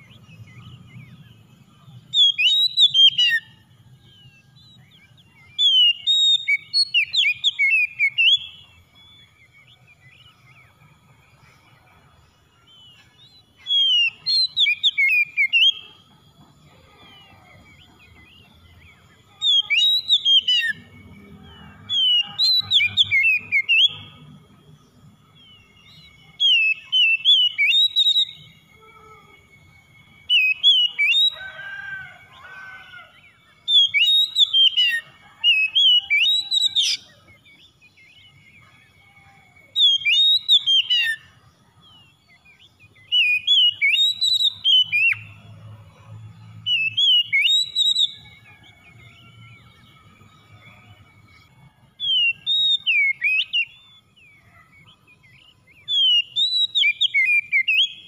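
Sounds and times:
bird singing whistled phrases: 2.0s - 3.6s, 4.2s - 10.9s, 12.7s - 16.0s, 17.2s - 21.0s, 21.9s - 24.4s, 25.3s - 31.4s, 33.2s - 45.4s, 46.7s - 48.6s, 50.8s - 58.0s.

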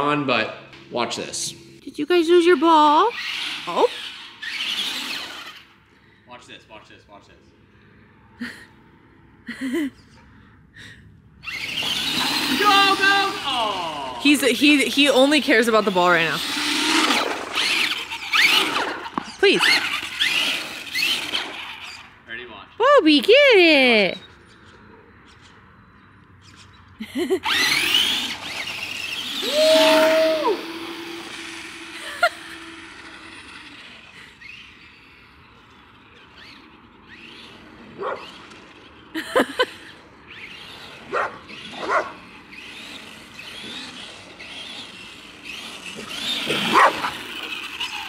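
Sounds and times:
electric motor whining: 0.8s - 5.8s, 11.4s - 22.1s, 27.2s - 39.2s, 39.8s - 48.0s
dog barking: 38.0s - 38.2s, 41.1s - 42.2s, 46.7s - 47.1s.

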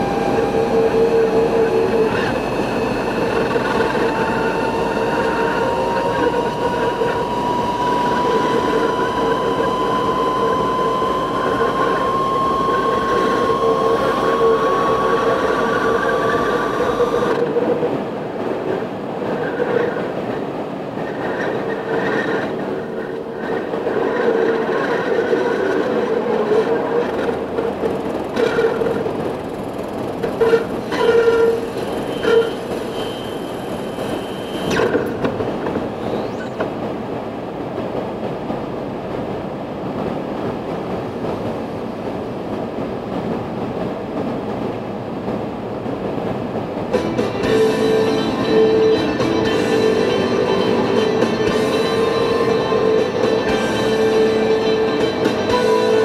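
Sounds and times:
high whine rising in pitch: 0.0s - 17.9s, 24.1s - 36.7s, 47.0s - 56.0s.

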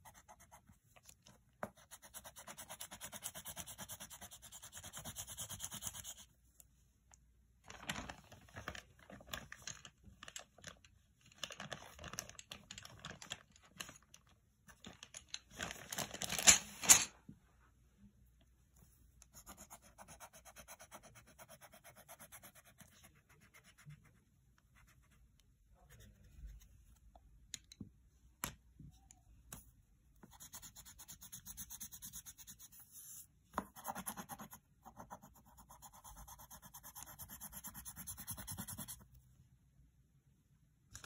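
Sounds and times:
scratching strokes on paper: 1.6s - 6.3s, 19.3s - 25.2s, 30.2s - 39.0s.

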